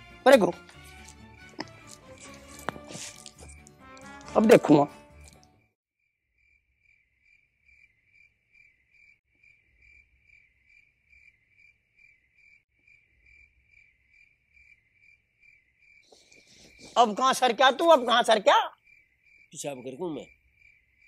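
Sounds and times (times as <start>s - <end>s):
faint cricket chirping: 6.4s - 21.0s.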